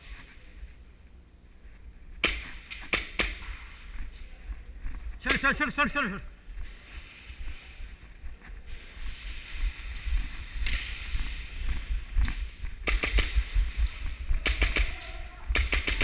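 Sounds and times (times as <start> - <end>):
steady hiss: 6.2 - 16.0
sharp clicks: 12.2 - 13.5, 14.4 - 16.0.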